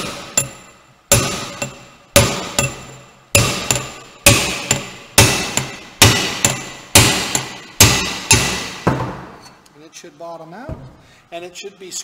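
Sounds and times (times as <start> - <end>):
metallic ring: 0.0 - 7.8
hammer strikes on metal: 0.0 - 9.4.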